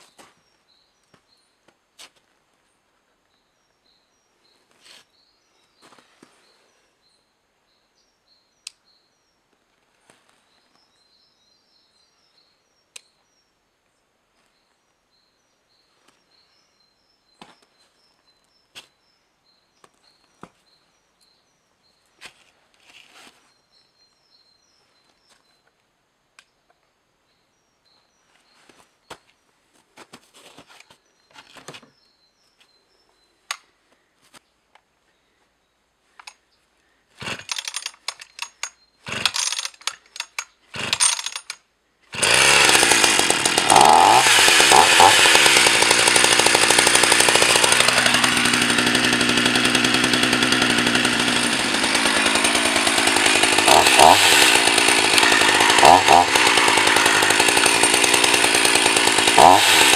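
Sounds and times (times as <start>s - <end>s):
chainsaw handled on snow: 22.2s - 23.5s, 42.2s - 49.7s, 50.4s - 58.7s.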